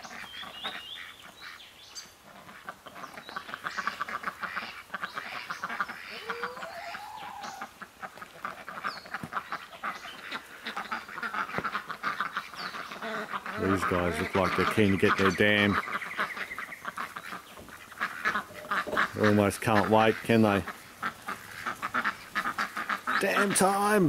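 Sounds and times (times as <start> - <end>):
ducks quacking: 0.0 - 24.0.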